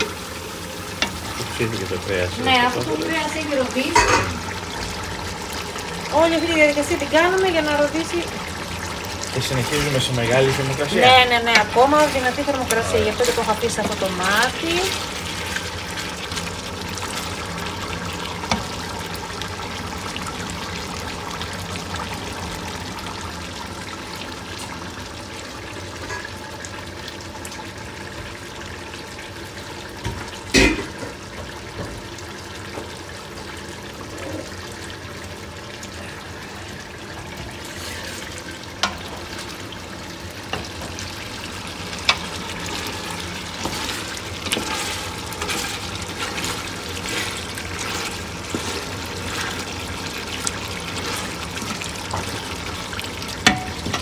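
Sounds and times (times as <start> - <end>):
meat sizzling in a pot: 0.0 - 54.0.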